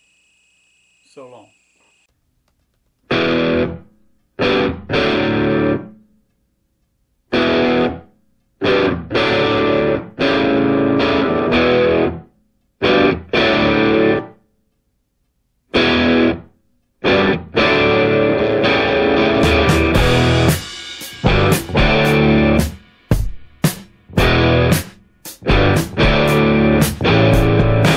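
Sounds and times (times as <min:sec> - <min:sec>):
distorted electric guitar chords: 0:03.1 - 0:06.0, 0:07.3 - 0:14.4, 0:15.7 - 0:22.8, 0:24.1 - 0:27.9.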